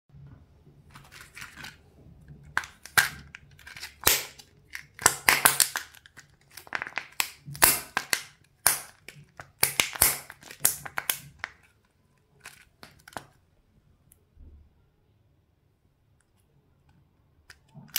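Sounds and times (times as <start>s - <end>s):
plastic packaging crinkling: 0.9s - 11.7s.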